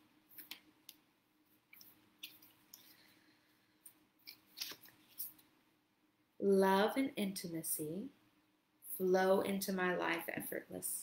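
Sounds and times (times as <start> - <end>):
faint room hum: 0.0 - 11.0
small rustles: 1.5 - 5.5.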